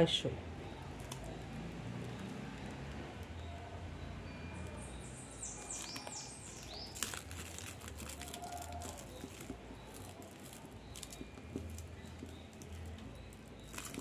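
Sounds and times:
plastic tape crinkling: 0:00.8 - 0:02.9, 0:05.4 - 0:14.0.

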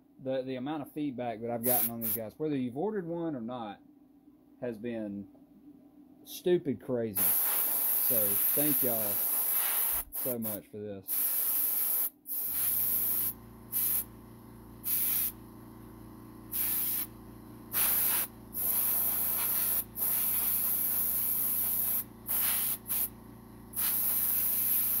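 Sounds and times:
spray paint hissing bursts: 0:01.6 - 0:02.2, 0:07.2 - 0:14.1, 0:14.8 - 0:15.4, 0:16.5 - 0:17.1, 0:17.7 - 0:23.1, 0:23.7 - 0:25.0
steady low hum: 0:12.3 - 0:25.0.

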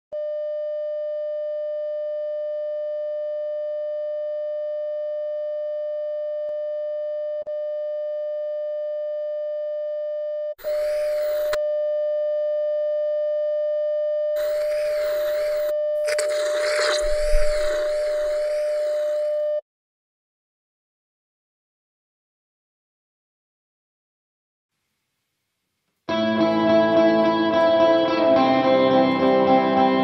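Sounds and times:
electronic test-tone beep: 0:10.6 - 0:11.6
hissing tv static: 0:10.6 - 0:11.6, 0:14.4 - 0:19.4.

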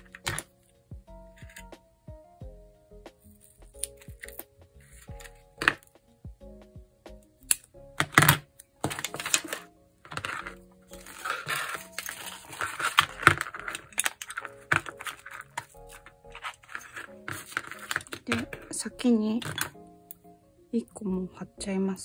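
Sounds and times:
soft background music: 0:00.0 - 0:22.0
scissors snipping tape: 0:03.4 - 0:05.8
tape and paper rustling: 0:08.0 - 0:18.7.

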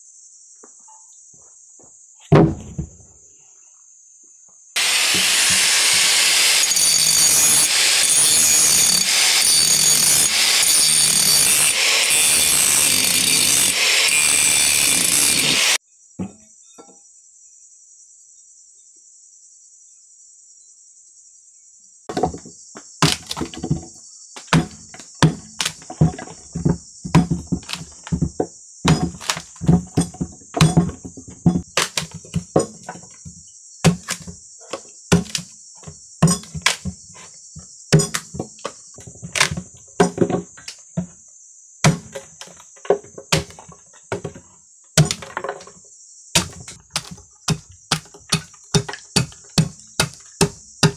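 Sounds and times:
insects chirring: 0:00.0 - 0:04.8, 0:15.8 - 0:50.9
hatchet chopping wood: 0:04.8 - 0:15.8, 0:22.1 - 0:37.0, 0:37.9 - 0:41.1, 0:41.8 - 0:44.4, 0:45.0 - 0:45.7, 0:46.4 - 0:50.9.

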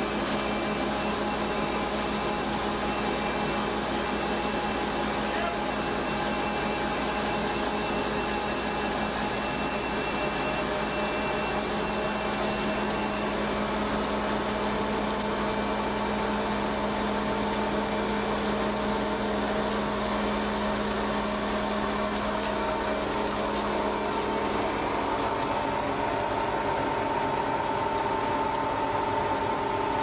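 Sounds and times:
machine drone with low hum: 0:00.0 - 0:30.0.

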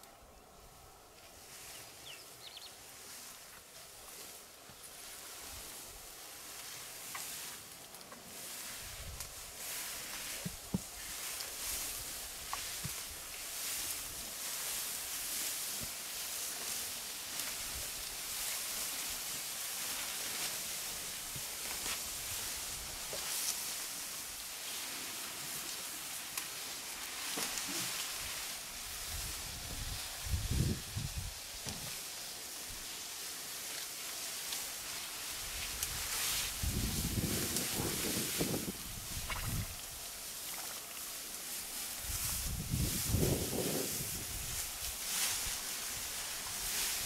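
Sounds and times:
rustling of grass: 0:00.0 - 0:47.0
steady high hiss: 0:00.0 - 0:47.0.

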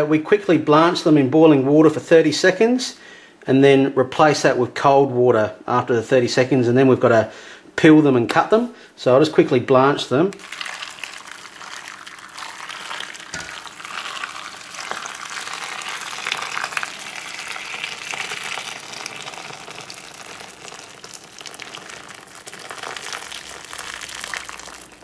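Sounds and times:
boiling water pouring into bowl: 0:10.3 - 0:25.0.

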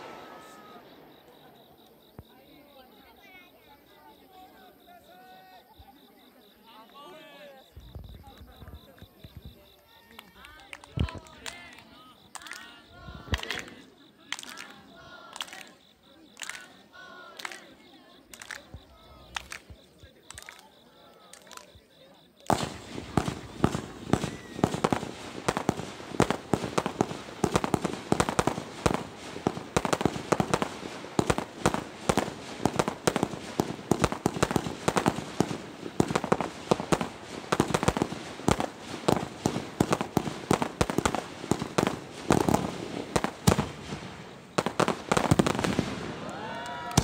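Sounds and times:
fireworks launching and bursting: 0:00.0 - 0:02.4, 0:10.8 - 0:14.7, 0:22.4 - 0:47.0
fireworks bangs and crackling: 0:00.0 - 0:02.9, 0:10.4 - 0:14.6, 0:22.4 - 0:47.0.

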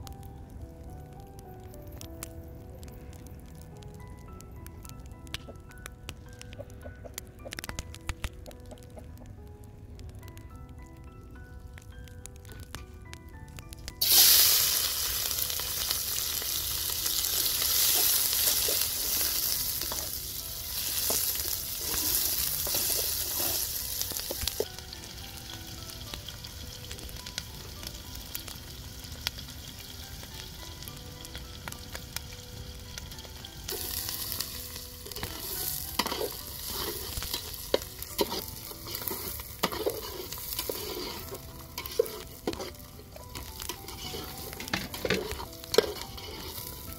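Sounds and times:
food sizzling in hot oil: 0:14.0 - 0:46.9
spoon stirring against pot: 0:35.0 - 0:46.8.

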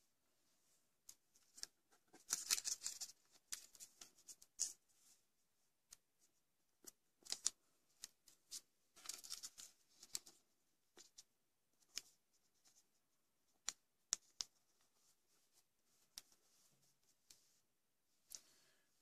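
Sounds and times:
paper crinkling while folded: 0:01.3 - 0:05.2, 0:06.8 - 0:10.4.

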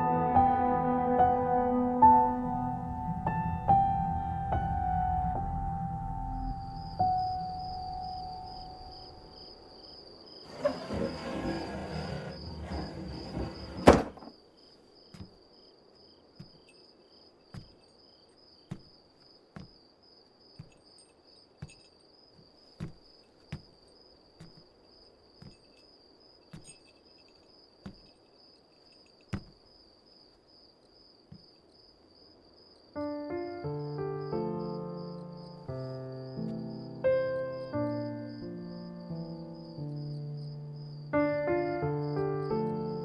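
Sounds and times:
soft piano music: 0:00.0 - 0:09.9, 0:33.0 - 0:43.0
crickets chirping: 0:00.0 - 0:43.0
footsteps on wooden floor: 0:10.5 - 0:14.3, 0:15.1 - 0:15.4, 0:16.4 - 0:16.6, 0:17.5 - 0:17.8, 0:18.7 - 0:19.8, 0:20.6 - 0:20.8, 0:21.6 - 0:23.7, 0:24.4 - 0:24.7, 0:27.8 - 0:28.1, 0:29.3 - 0:29.6
wooden door banging shut: 0:10.5 - 0:14.4.

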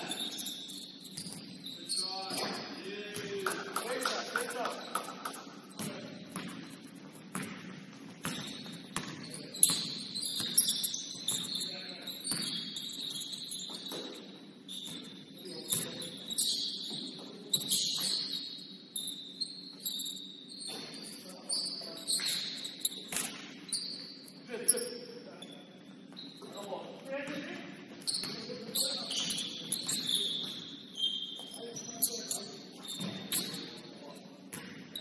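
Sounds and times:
sneakers squeaking on court: 0:00.0 - 0:35.0
basketball bouncing: 0:04.9 - 0:11.5, 0:12.3 - 0:18.4, 0:34.5 - 0:35.0.

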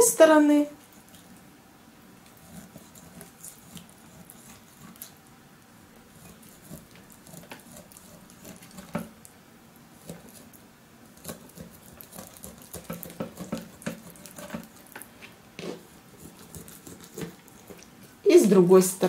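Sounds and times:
knife cutting meat on cutting board: 0:06.1 - 0:09.2, 0:11.2 - 0:17.8.

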